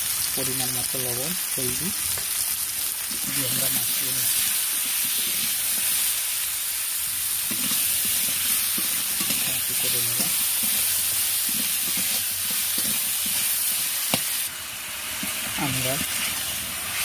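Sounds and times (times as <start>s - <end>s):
food sizzling in hot oil: 0.0s - 17.0s
metal spatula stirring: 3.1s - 6.2s, 7.4s - 14.4s, 15.2s - 17.0s.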